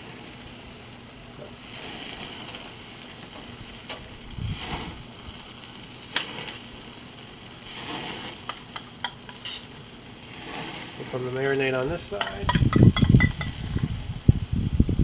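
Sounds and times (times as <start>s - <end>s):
meat sizzling on grill: 0.0s - 15.0s.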